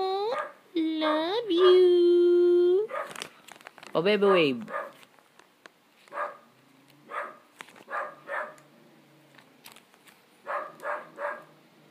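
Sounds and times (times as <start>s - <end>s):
dog barking: 0.3s - 1.8s, 2.9s - 3.2s, 4.2s - 5.0s, 6.1s - 6.5s, 7.1s - 8.6s, 10.4s - 11.5s.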